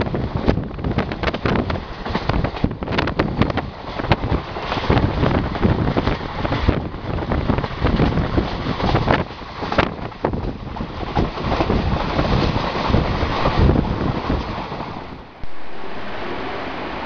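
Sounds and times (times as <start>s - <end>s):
train coach running at speed: 0.0s - 17.0s
wind buffeting microphone: 0.0s - 17.0s.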